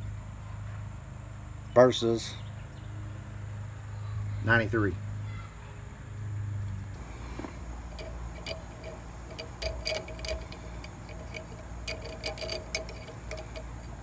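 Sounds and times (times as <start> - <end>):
socket ratchet clicking: 7.8 - 14.0.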